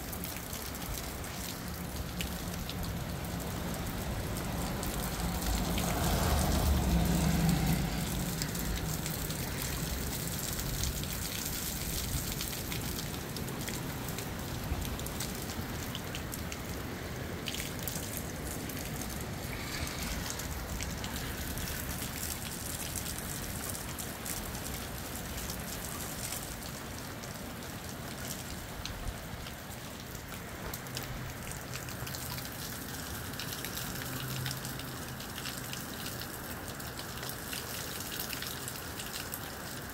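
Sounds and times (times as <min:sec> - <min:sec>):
moderate rain falling: 0:00.0 - 0:39.9.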